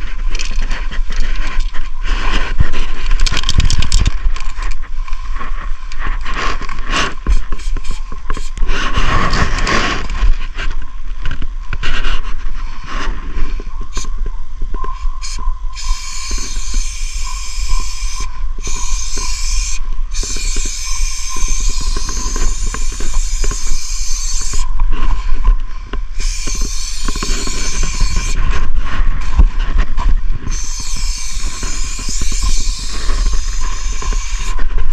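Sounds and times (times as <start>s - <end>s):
crunching footsteps: 0.0s - 34.9s
spray paint can hissing: 7.3s - 8.6s, 15.2s - 24.7s, 26.2s - 28.4s, 30.5s - 34.6s.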